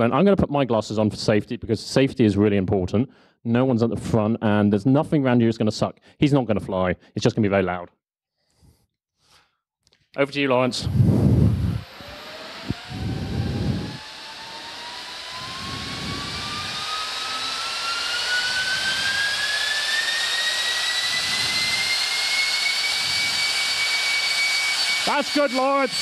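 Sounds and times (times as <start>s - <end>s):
electric fans whining: 10.6s - 26.0s.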